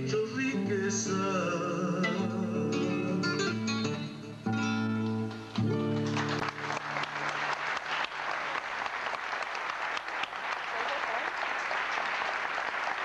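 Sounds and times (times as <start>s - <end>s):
audience applause: 5.3s - 13.0s.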